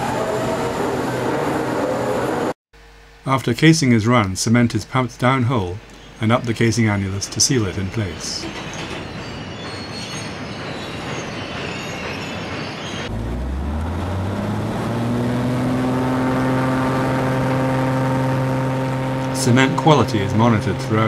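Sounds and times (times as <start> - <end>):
machinery rumble and hiss: 3.2 - 8.9, 18.8 - 21.0
diesel engine droning: 13.1 - 21.0.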